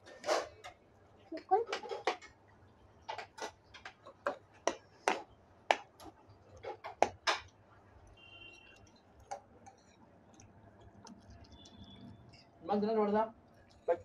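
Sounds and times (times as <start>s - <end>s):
eating clicks: 7.4s - 12.5s.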